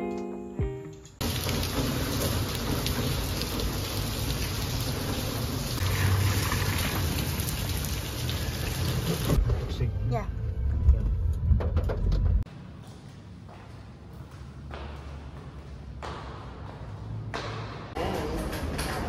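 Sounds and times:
plucked guitar notes: 0.0 - 1.2
rain on wet paving: 1.2 - 9.4.

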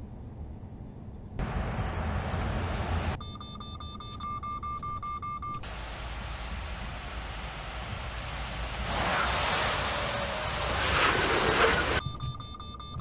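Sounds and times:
road and engine rumble: 0.0 - 3.4, 5.5 - 12.0
rapid high pulsing warning beeps: 3.2 - 5.6.

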